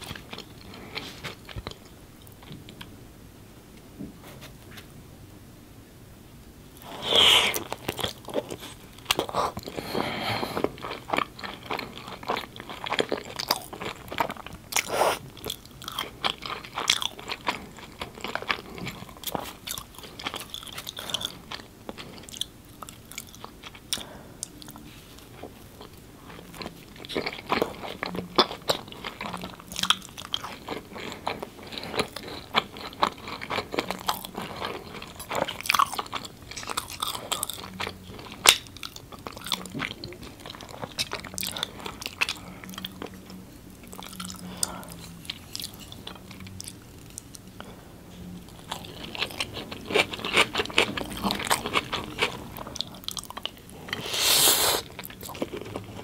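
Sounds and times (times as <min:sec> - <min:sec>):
person biting and chewing: 0:48.6 - 0:56.0.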